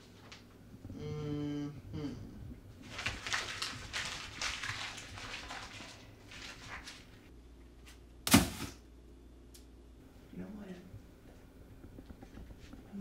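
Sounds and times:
paper rustling and shuffling: 0:02.8 - 0:08.8.

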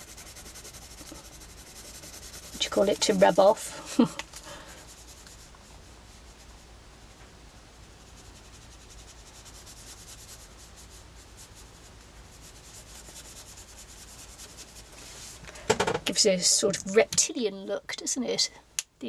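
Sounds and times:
pen scratching on paper: 0:00.0 - 0:03.7, 0:04.6 - 0:06.6, 0:08.0 - 0:14.9.

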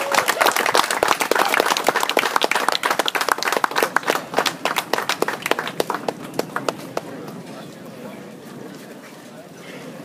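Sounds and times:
small crowd applauding: 0:00.0 - 0:07.4.

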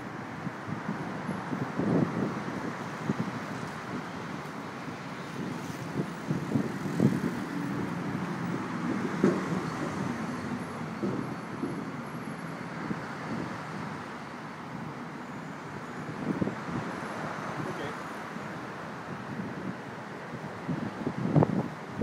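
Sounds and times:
vehicle rumble: 0:00.0 - 0:22.0
low knocks and clatter: 0:08.9 - 0:10.1.

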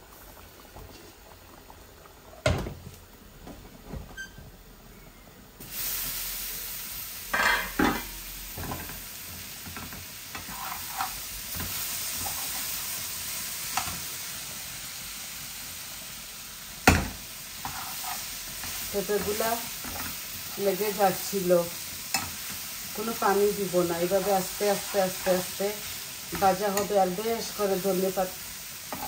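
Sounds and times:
vegetables sizzling in a pan: 0:00.0 - 0:29.0
spatula scraping a pan: 0:10.4 - 0:11.2, 0:17.6 - 0:20.7.

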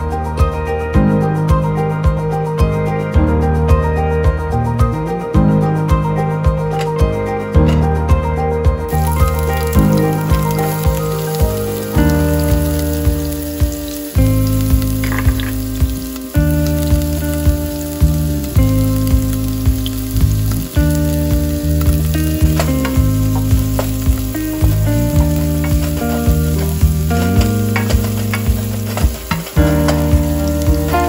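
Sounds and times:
background music with beat: 0:00.0 - 0:31.0
onions sizzling in oil: 0:08.9 - 0:31.0.

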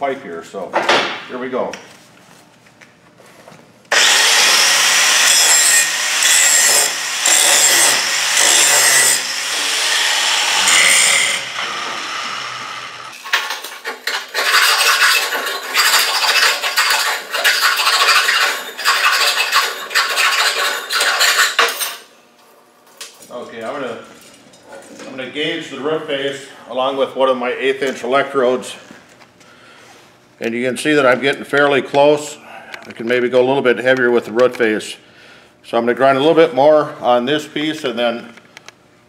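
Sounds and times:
angle grinder grinding steel: 0:03.9 - 0:22.0
file rasping on metal: 0:04.0 - 0:13.2, 0:13.9 - 0:21.7.

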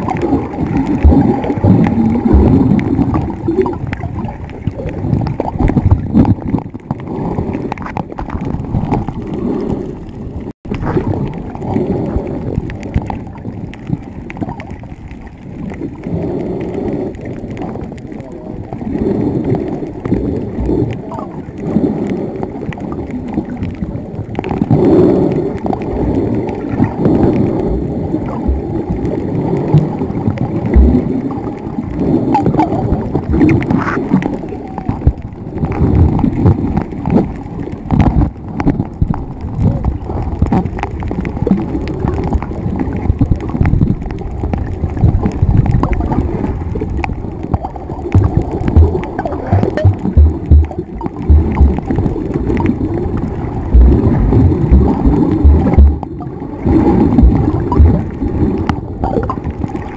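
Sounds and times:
underwater knocks: 0:00.0 - 0:09.3, 0:29.7 - 0:31.1, 0:32.3 - 0:59.8
underwater sloshing and gurgling: 0:00.0 - 0:59.9.

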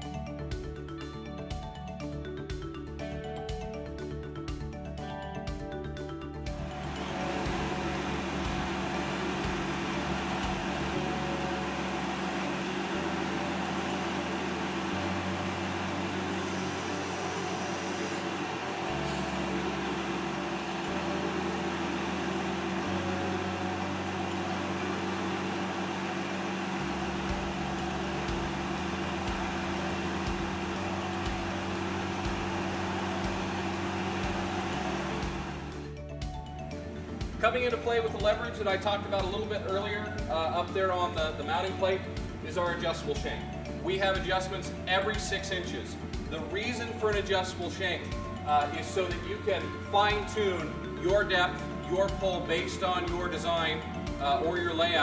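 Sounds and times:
tractor engine running: 0:06.5 - 0:55.0
hydraulic hiss: 0:16.3 - 0:19.9.

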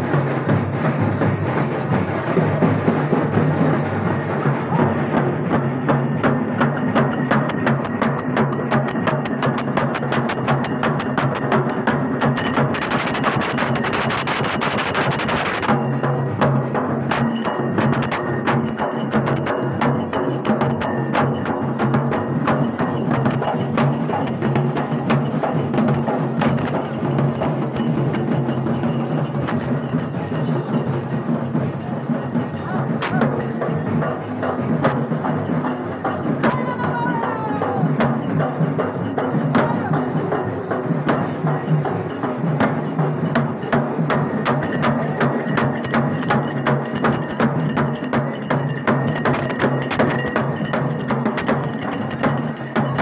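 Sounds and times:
clattering percussion: 0:00.0 - 0:53.0
fast barrel drumming: 0:00.0 - 0:53.0.

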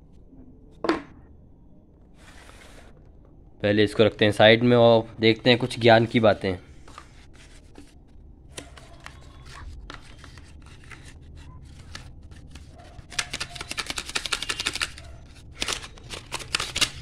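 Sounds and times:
cardboard and paper rustling: 0:06.8 - 0:17.0.

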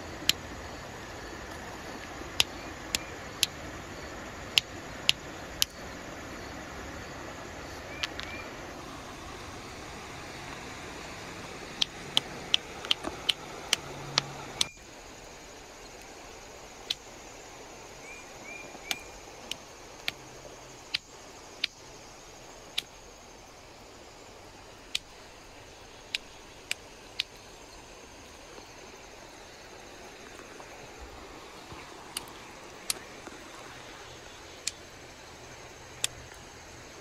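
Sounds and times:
stone knapping clicks: 0:08.0 - 0:08.3, 0:11.7 - 0:14.7, 0:18.9 - 0:20.2, 0:24.9 - 0:25.1, 0:32.1 - 0:33.4.

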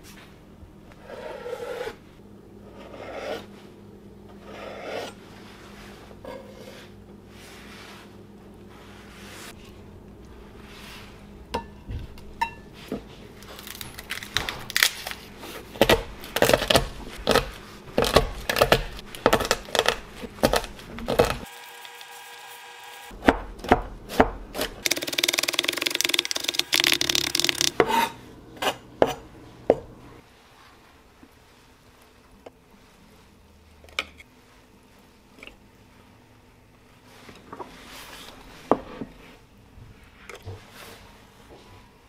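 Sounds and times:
knife chopping on wooden board: 0:15.8 - 0:21.5, 0:23.2 - 0:25.5.

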